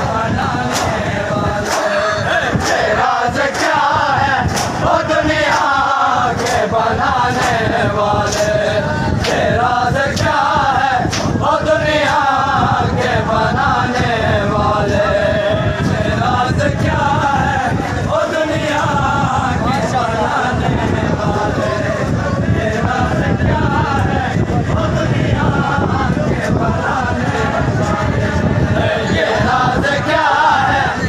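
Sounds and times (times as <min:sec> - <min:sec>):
men chanting a lament: 0:00.0 - 0:31.0
hands slapping chests: 0:00.7 - 0:01.0, 0:01.6 - 0:02.0, 0:04.5 - 0:04.8, 0:08.3 - 0:08.6, 0:11.1 - 0:11.4.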